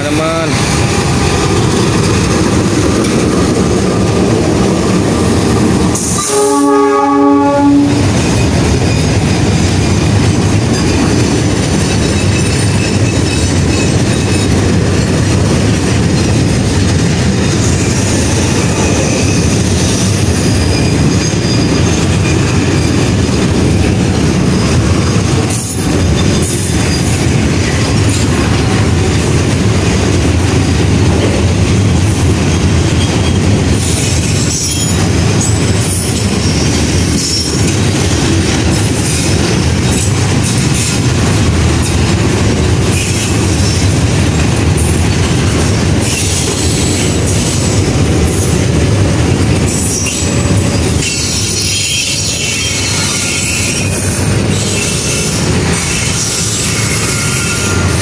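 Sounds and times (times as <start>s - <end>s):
train wheels rumbling on rails: 0.0s - 58.0s
wheel squeal: 49.8s - 58.0s.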